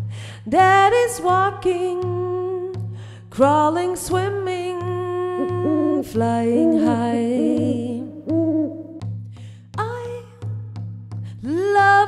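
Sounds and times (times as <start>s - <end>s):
woman singing held notes: 5.4s - 8.7s.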